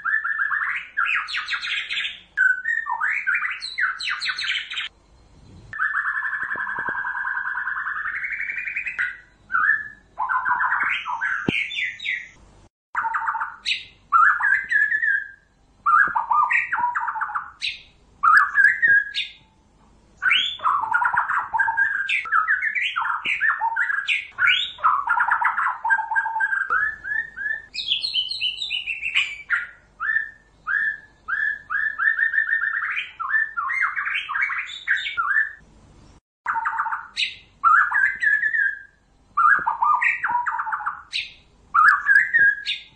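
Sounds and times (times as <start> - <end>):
bird singing whistles and trills: 0.0 - 12.4, 13.0 - 19.6, 20.2 - 35.6, 36.5 - 42.9.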